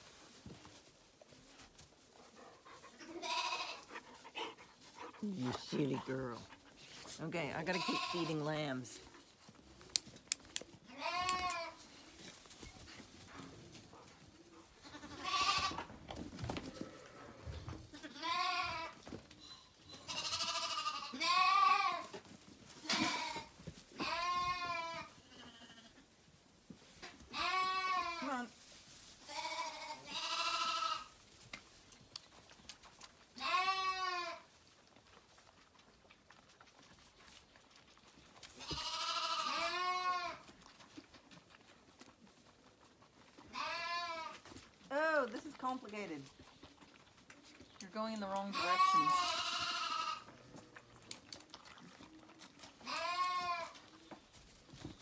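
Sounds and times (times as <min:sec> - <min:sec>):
lambs bleating: 0:03.0 - 0:04.0, 0:07.6 - 0:08.7, 0:10.9 - 0:11.8, 0:14.8 - 0:15.9, 0:17.9 - 0:22.1, 0:22.8 - 0:26.0, 0:27.0 - 0:28.5, 0:29.3 - 0:31.2, 0:33.4 - 0:34.5, 0:38.6 - 0:40.5, 0:43.5 - 0:44.4, 0:48.4 - 0:50.3, 0:52.8 - 0:53.8.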